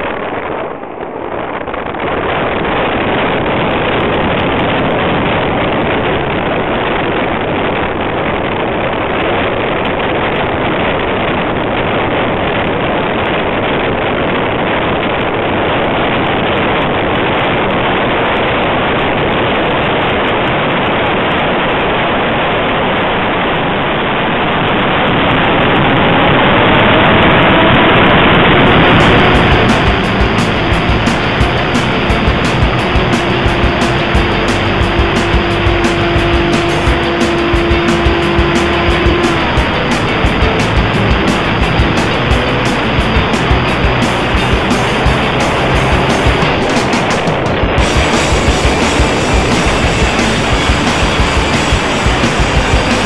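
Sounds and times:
airflow rush: 23.8 - 53.0.

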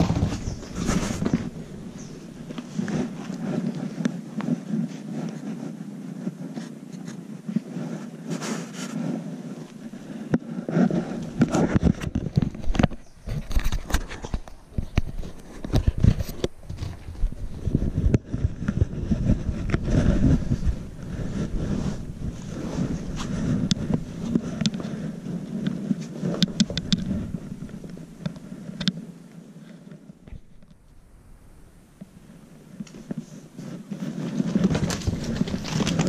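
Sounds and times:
camera rubbing against fur: 0.0 - 31.0, 32.0 - 36.0.

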